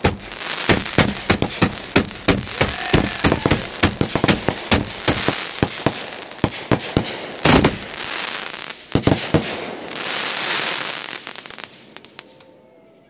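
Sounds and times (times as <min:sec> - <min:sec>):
fireworks bangs: 0:00.0 - 0:12.4
crackling hiss of sparks: 0:00.0 - 0:12.5.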